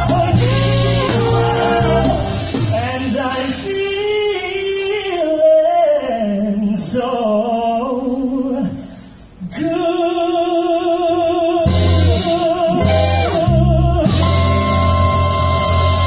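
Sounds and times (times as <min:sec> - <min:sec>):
trumpet melody: 0:00.0 - 0:02.8, 0:11.7 - 0:16.0.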